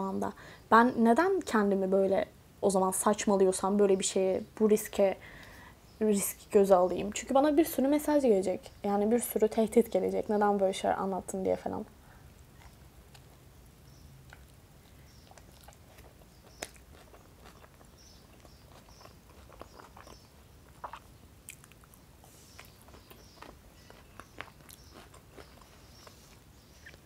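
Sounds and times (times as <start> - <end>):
person chewing: 12.3 - 13.5, 14.2 - 27.0.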